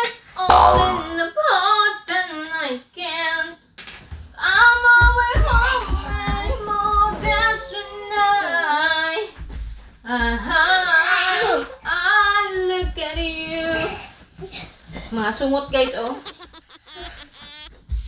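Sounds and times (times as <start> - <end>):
high childlike female singing: 4.4 - 9.4, 10.1 - 14.0.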